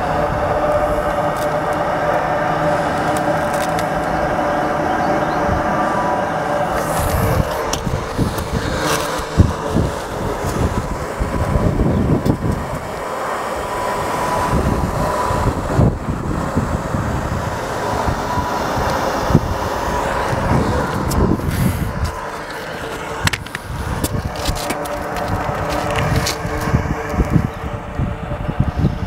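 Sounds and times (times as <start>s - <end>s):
low outdoor rumble: 0.0s - 29.0s
boots scuffing on shingles: 22.0s - 26.7s.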